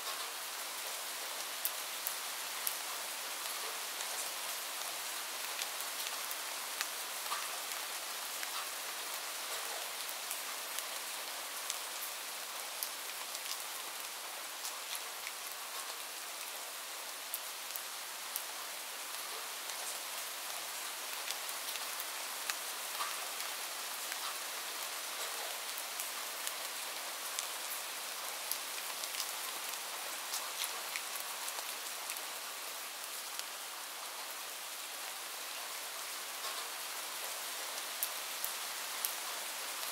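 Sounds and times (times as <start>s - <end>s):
steady rain hiss: 0.0s - 39.9s
rain drop ticks: 5.5s - 7.5s, 8.4s - 8.8s, 22.5s - 23.2s.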